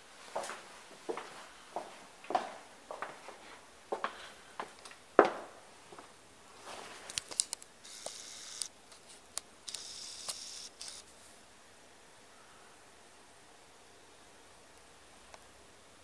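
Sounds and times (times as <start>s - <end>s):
footsteps on carpet: 0.2s - 7.1s.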